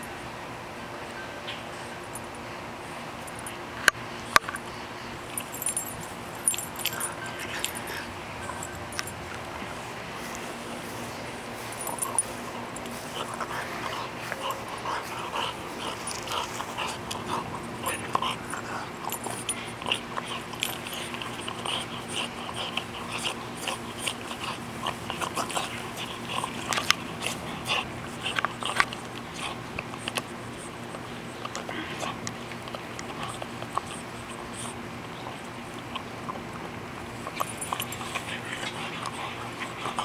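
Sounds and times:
dog chewing wooden stick: 10.2s - 40.0s.

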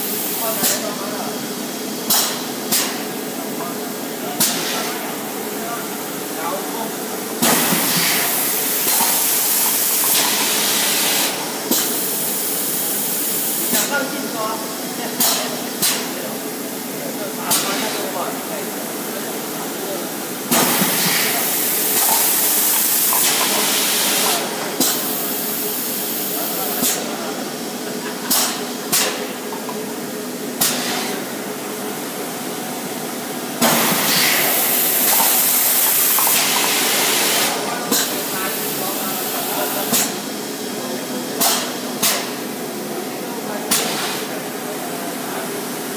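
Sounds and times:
loud machine hiss: 0.0s - 3.2s, 7.2s - 16.4s, 19.8s - 29.5s, 33.5s - 42.4s
machine hissing loudly: 20.5s - 27.6s.

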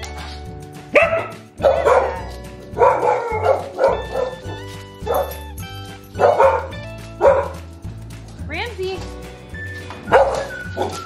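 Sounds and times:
upbeat background music: 0.0s - 11.0s
dog barking: 0.9s - 5.5s, 6.2s - 7.6s, 10.1s - 11.0s.

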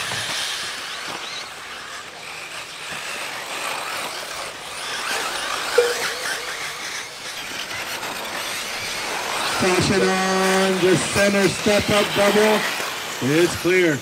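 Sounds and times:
electric motors whining: 0.0s - 14.0s
brief tone: 5.8s - 7.1s
tyres rushing on dirt: 7.1s - 14.0s.

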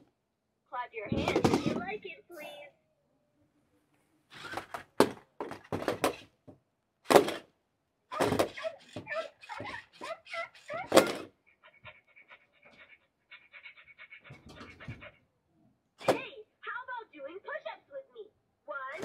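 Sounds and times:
toy dog panting sound effects: 8.1s - 13.9s.

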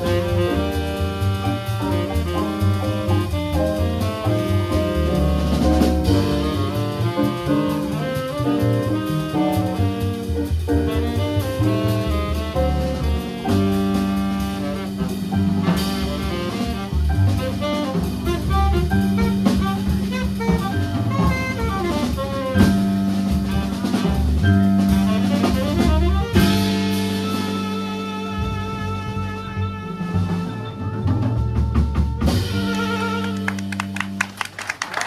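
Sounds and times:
low bass line: 0.0s - 34.1s
drums and cymbals: 0.0s - 34.4s
jazz keyboard: 0.0s - 34.5s.

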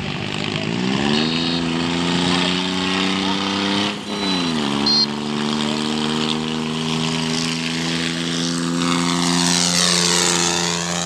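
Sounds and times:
tractor diesel engine droning: 0.0s - 11.0s
high-pitched beep: 3.8s - 5.2s.

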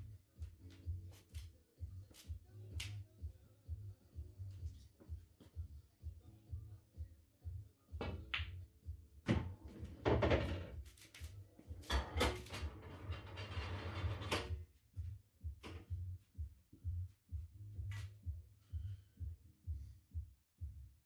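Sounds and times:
music with thumping bass beat: 0.0s - 12.1s, 14.5s - 21.0s
balls rolling and knocking: 9.3s - 11.2s.

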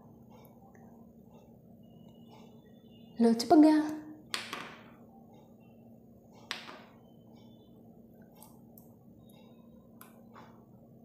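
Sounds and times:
low steady hum: 0.0s - 11.0s
clay discs knocking on tabletop: 4.3s - 5.0s, 6.5s - 6.9s.

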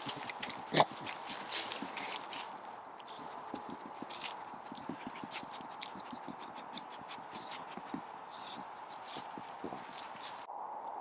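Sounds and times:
dry leaves crackling underfoot: 0.0s - 6.0s, 8.6s - 10.5s.

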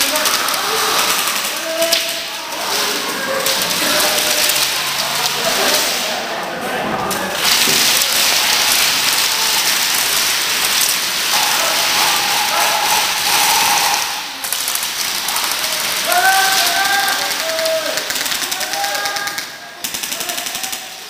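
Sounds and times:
airsoft guns firing in bursts: 7.4s - 21.0s
people shouting: 11.2s - 18.0s.

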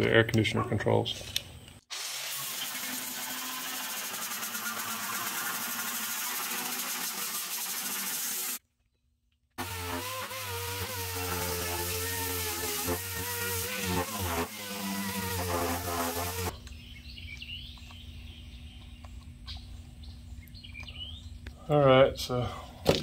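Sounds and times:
sanding disc grinding metal: 2.4s - 8.6s, 9.6s - 16.5s
grinder motor whine: 9.6s - 16.5s.

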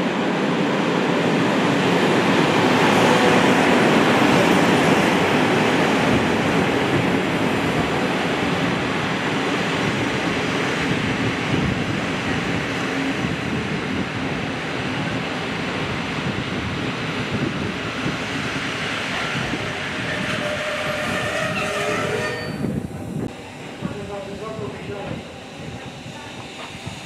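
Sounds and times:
train wheels rumbling on rails: 0.0s - 27.0s
train brakes squealing: 19.7s - 22.8s.

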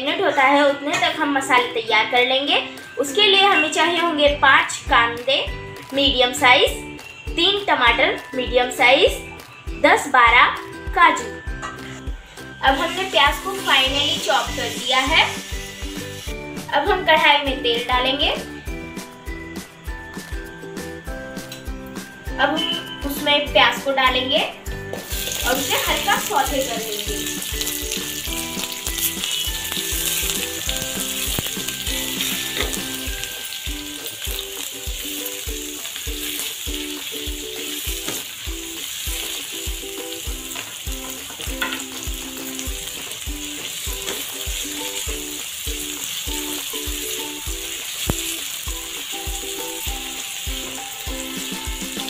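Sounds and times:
soft background music with beat: 0.0s - 52.0s
onions sizzling in hot oil: 11.9s - 19.1s, 24.2s - 52.0s.

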